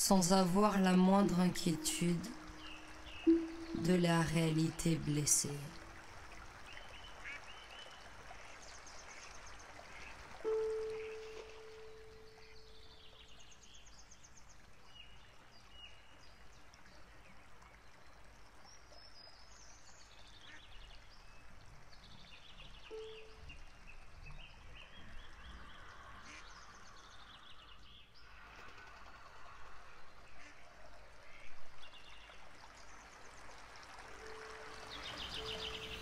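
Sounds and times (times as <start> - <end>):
birds chirping and trilling: 0.0 - 5.6, 10.5 - 13.3, 34.2 - 36.0
steady low tone: 0.0 - 6.4, 10.5 - 13.0, 22.9 - 23.6, 34.1 - 36.0.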